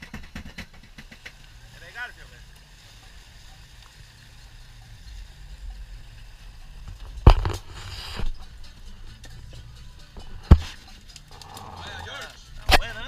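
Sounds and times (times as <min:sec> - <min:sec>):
hissing noise: 0:06.8 - 0:08.8.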